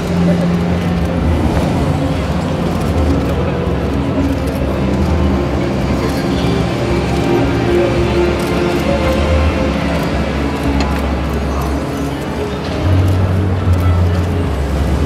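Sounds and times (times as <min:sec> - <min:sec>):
background music over sound system: 0:00.0 - 0:15.0
crowd chatter: 0:00.0 - 0:15.0.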